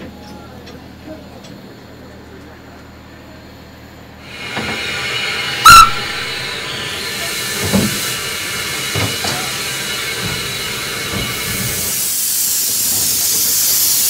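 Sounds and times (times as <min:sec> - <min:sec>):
steam locomotive hissing: 0:04.1 - 0:14.0
soft steam chuffs: 0:04.2 - 0:14.0
steam whistle toot: 0:05.3 - 0:08.1.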